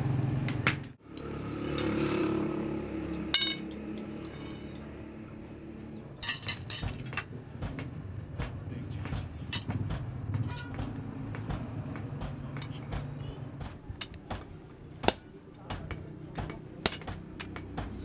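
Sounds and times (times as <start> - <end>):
metal clinking: 3.0 - 5.0, 6.2 - 8.0, 9.1 - 11.4, 12.6 - 18.0.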